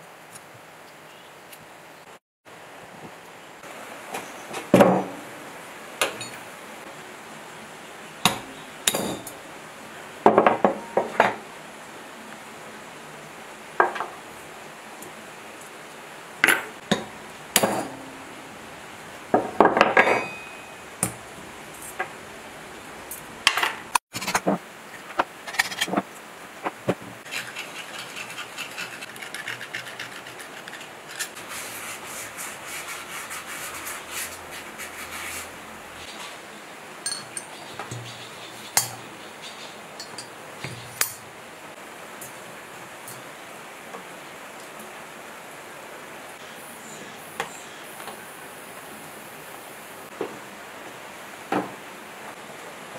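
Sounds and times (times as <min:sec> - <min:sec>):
scrubbing metal surface by hand: 0:26.6 - 0:36.4.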